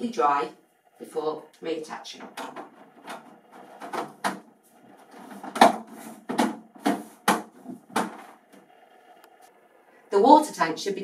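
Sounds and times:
plastic scraping: 2.3 - 8.6.

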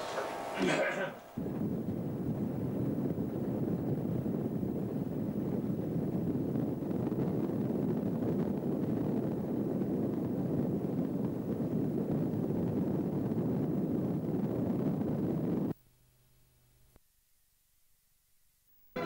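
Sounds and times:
wind buffeting microphone: 1.4 - 15.7.

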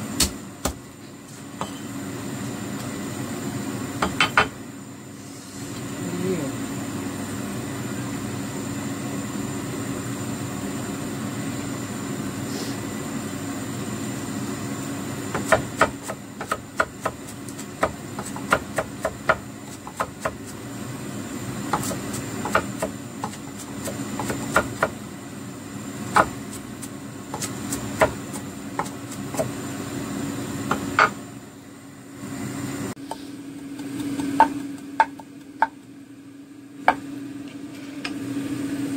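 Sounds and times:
cleaver knocking on wooden board: 33.8 - 35.8.

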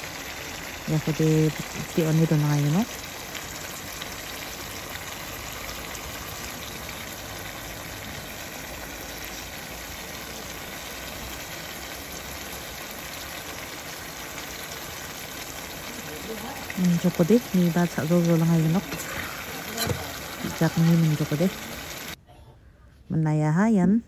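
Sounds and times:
food sizzling in a pan: 0.0 - 22.2.

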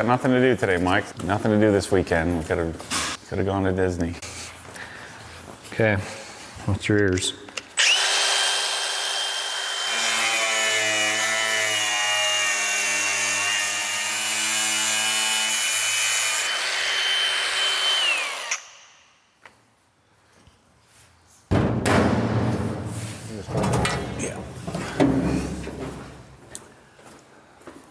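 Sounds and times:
angle grinder whine: 7.8 - 18.9
grinder winding down: 7.8 - 18.9
grinder cutting sheet metal: 7.8 - 19.1.

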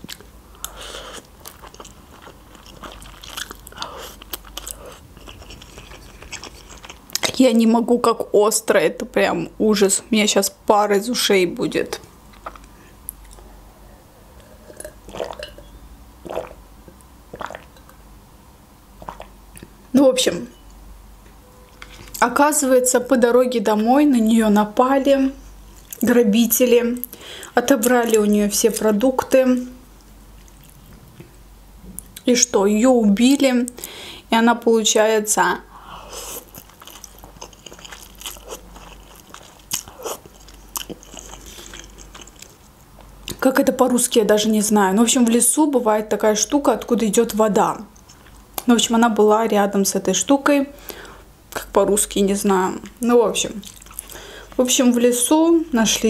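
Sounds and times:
chewing noodles: 0.0 - 7.4, 14.4 - 16.6, 17.3 - 17.8, 36.2 - 43.4, 53.6 - 54.2
water swallowing gulps: 14.4 - 15.6, 16.2 - 16.6, 17.3 - 17.9, 19.0 - 19.7.

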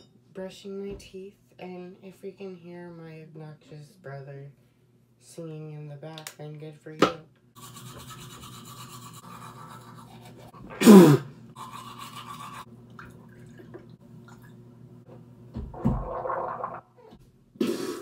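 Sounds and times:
toothbrush scrubbing teeth: 7.6 - 10.6, 11.6 - 12.7.

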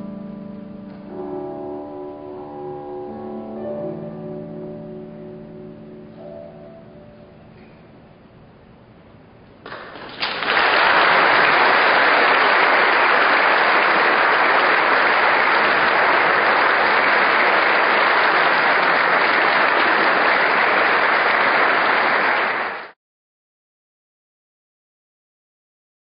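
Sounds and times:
audience applauding: 9.7 - 23.0.

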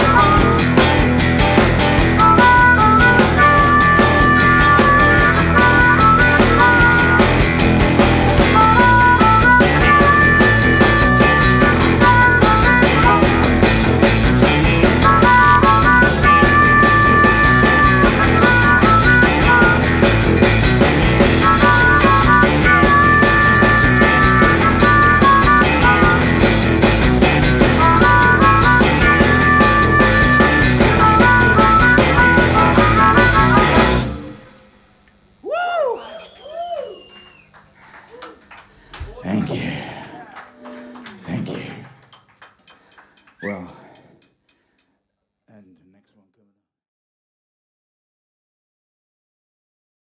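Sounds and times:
bass guitar: 0.0 - 34.6
electric guitars: 0.0 - 34.8
high lead guitar melody: 0.0 - 34.9
drums: 0.0 - 37.7.

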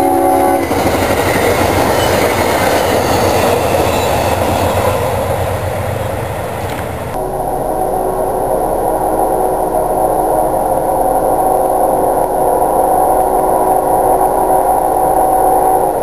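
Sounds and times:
crossing warning bells ringing: 0.0 - 7.2
car engine idling: 0.1 - 7.2.

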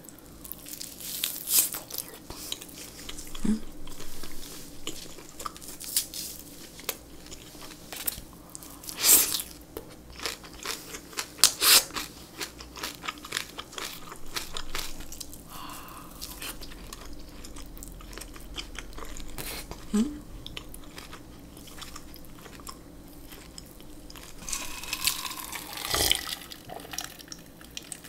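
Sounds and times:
crunching of cabbage: 0.4 - 28.0
wet chewing: 0.5 - 28.0.

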